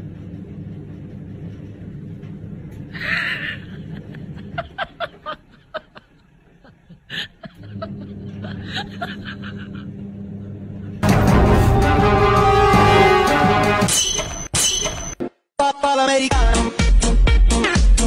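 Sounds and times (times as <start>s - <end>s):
low background hum: 0.0s - 11.1s
person snickering: 2.9s - 10.0s.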